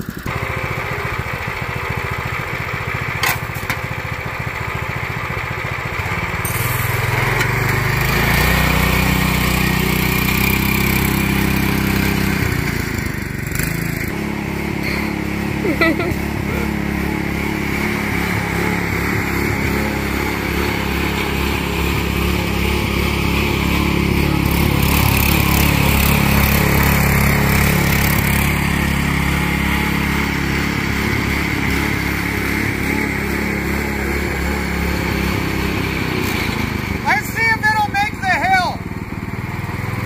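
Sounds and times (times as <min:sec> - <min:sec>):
small engine running under load: 0:00.0 - 0:40.0.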